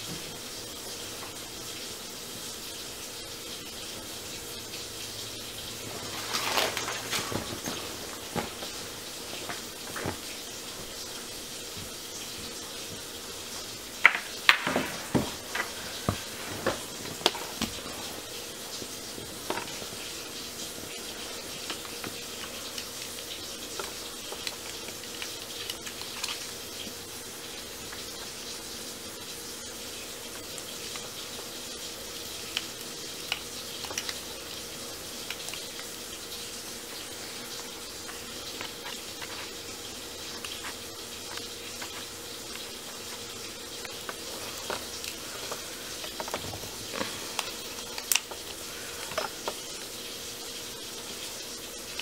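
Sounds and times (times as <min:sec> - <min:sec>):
background hiss: 0:00.0 - 0:52.0.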